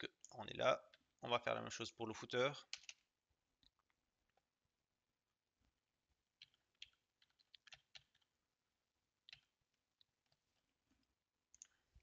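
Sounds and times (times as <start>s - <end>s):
faint keyboard typing: 2.6s - 4.5s, 6.3s - 8.4s, 9.2s - 12.0s.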